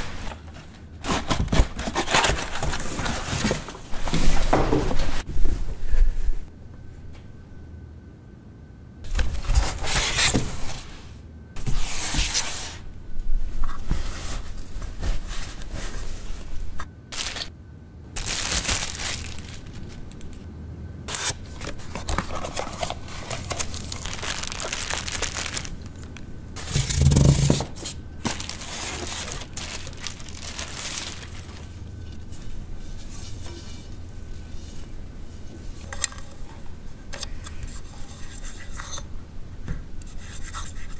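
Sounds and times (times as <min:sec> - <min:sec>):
paper and plastic rustling: 0:00.0 - 0:05.3, 0:13.6 - 0:17.5, 0:18.2 - 0:20.4, 0:21.1 - 0:34.9.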